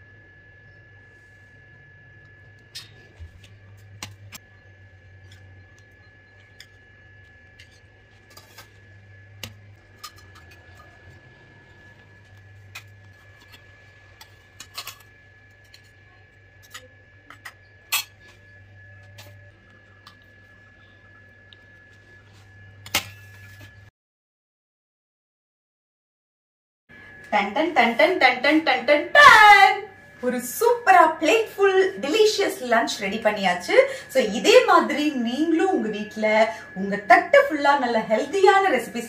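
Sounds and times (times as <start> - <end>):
faint hum: 0.0 - 23.9, 26.9 - 39.0
thin high whine: 0.0 - 23.9, 26.9 - 39.0.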